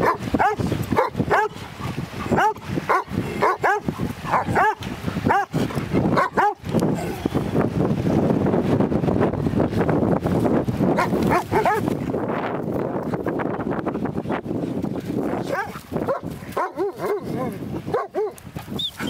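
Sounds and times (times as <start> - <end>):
dog whining and yipping: 18.8 - 19.0.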